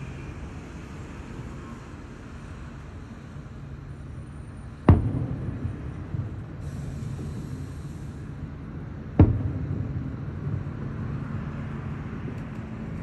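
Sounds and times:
low background rumble: 4.7s - 13.0s.

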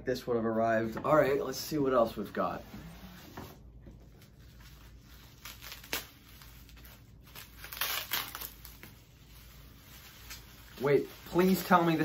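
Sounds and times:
packing material crinkling: 4.1s - 12.0s.

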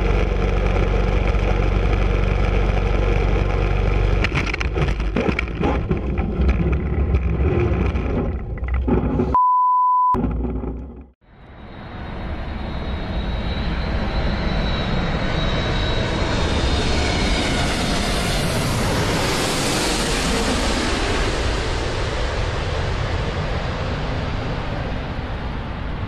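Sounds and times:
faint high engine whine: 9.4s - 20.4s
jet engines rushing: 11.4s - 26.0s.

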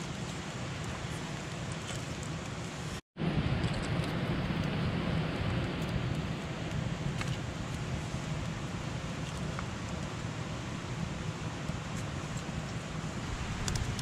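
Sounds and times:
fire crackles and pops: 0.0s - 14.0s
fire rumbling: 0.0s - 14.0s.

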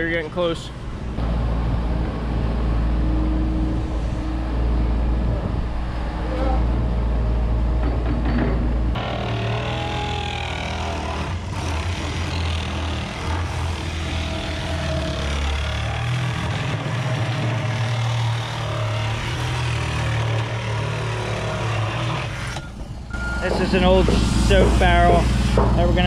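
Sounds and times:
reciprocating saw cutting plastic: 9.0s - 22.8s.

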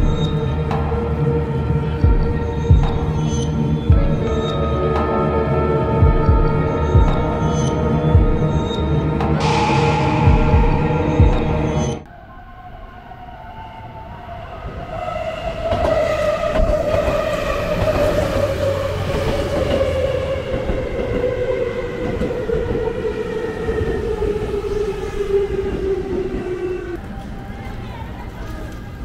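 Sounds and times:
ominous background music: 0.0s - 28.1s
train wheels rumbling on track: 5.9s - 12.1s, 14.8s - 29.0s.

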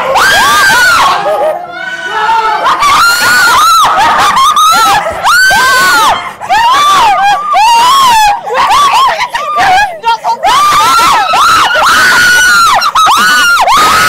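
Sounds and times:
women screaming: 0.0s - 14.0s.

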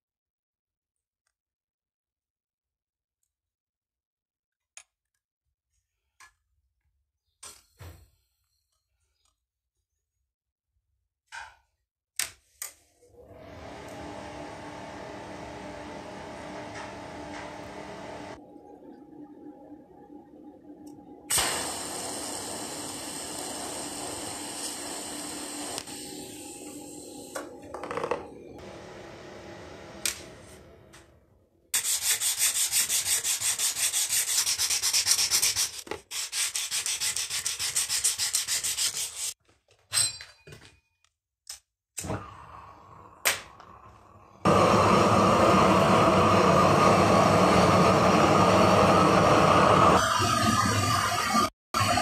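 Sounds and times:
gas torch roaring: 13.2s - 18.4s, 21.3s - 27.8s, 28.5s - 31.2s, 42.0s - 52.0s
welding arc hissing: 21.3s - 27.4s
hand sanding knife blade: 31.8s - 39.4s.

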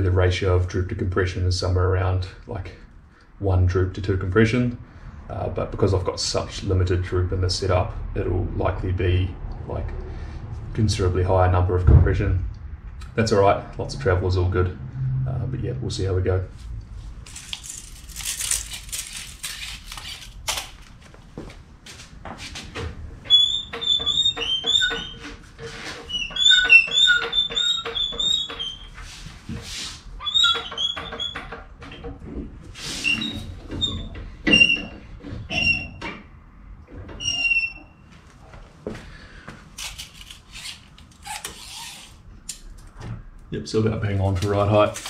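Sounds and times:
floor jack clicking and squeaking: 23.2s - 29.0s, 30.2s - 32.2s.

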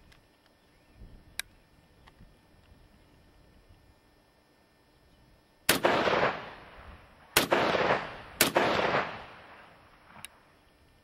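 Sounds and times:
gunshot echo: 5.7s - 10.2s
rifle shots: 5.7s - 10.3s.

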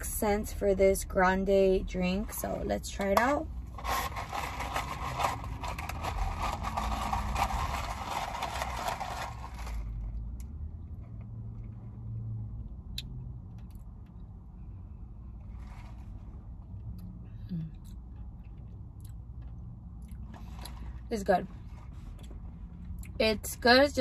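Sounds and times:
low steady rumble: 0.0s - 24.0s
plastic cup rustling clatter: 3.0s - 10.1s.

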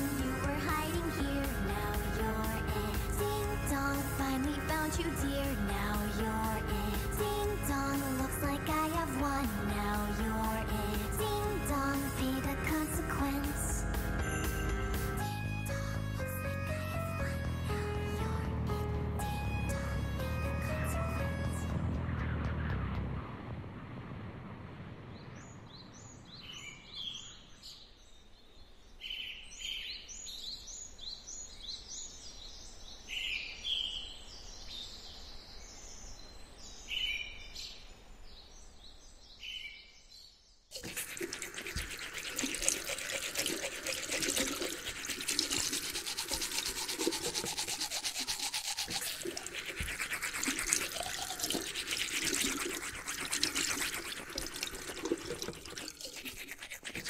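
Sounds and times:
toothbrush scrubbing teeth: 40.7s - 57.0s.

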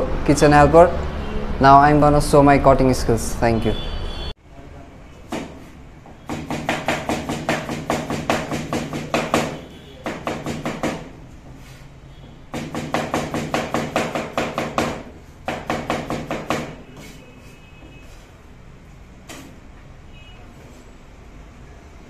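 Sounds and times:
knife chopping on plastic board: 5.3s - 11.2s, 12.5s - 17.1s.

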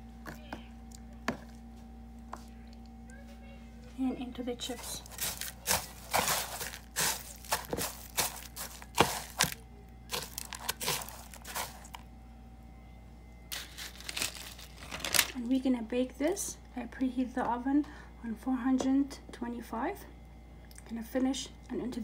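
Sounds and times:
potato chips crunching and crackling: 4.7s - 12.0s, 13.5s - 15.4s.

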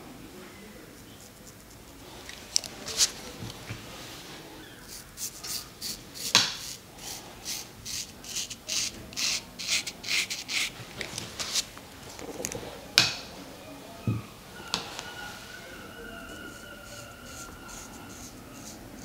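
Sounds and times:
razor scraping a scalp: 4.8s - 10.8s, 15.4s - 19.0s.

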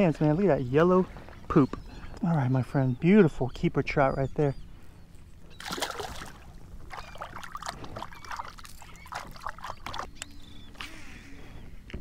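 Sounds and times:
water splashing and trickling: 5.6s - 10.1s.

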